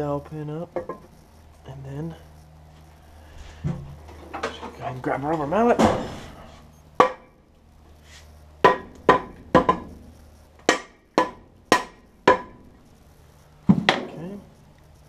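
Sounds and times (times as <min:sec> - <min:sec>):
rubber mallet knocking on metal: 0:08.7 - 0:09.8, 0:10.7 - 0:12.5.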